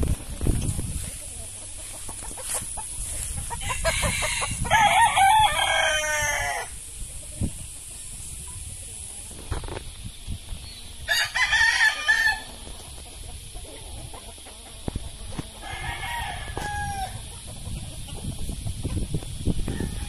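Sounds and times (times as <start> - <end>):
rooster crowing: 3.6 - 6.8, 11.1 - 12.5, 15.6 - 17.2, 19.6 - 20.0.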